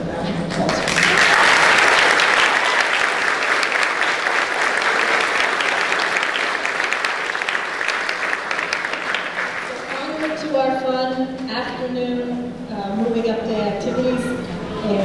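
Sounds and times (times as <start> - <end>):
audience applauding: 0.5 - 10.6.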